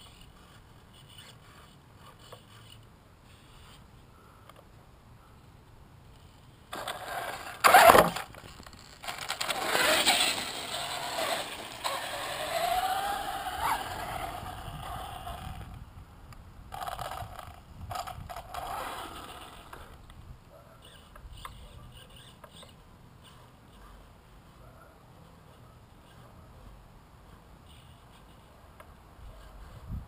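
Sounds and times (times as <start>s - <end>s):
tyres rolling on concrete: 6.7s - 15.5s
rc truck motor whine: 6.8s - 15.8s, 16.7s - 20.0s
motor throttle bursts: 9.4s - 15.3s.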